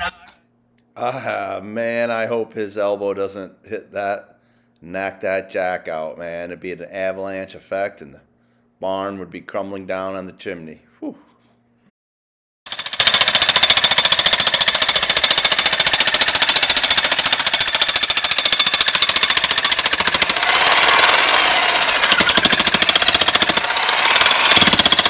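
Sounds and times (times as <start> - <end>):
jackhammer chiselling stone: 12.7 - 25.0.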